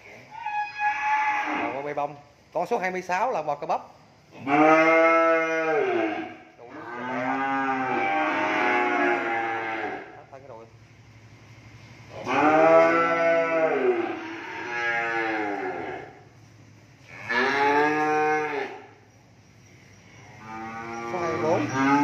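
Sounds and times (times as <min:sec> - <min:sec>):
young cattle mooing: 0:00.3 - 0:01.9, 0:04.4 - 0:10.3, 0:12.1 - 0:16.3, 0:17.0 - 0:19.0, 0:20.2 - 0:22.0.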